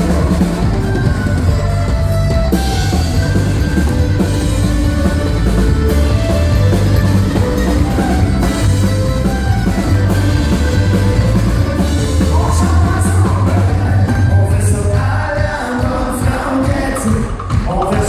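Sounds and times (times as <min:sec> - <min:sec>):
fiddle: 0:00.0 - 0:14.2
heavy bass line: 0:00.0 - 0:16.8
country band playing: 0:00.0 - 0:18.0.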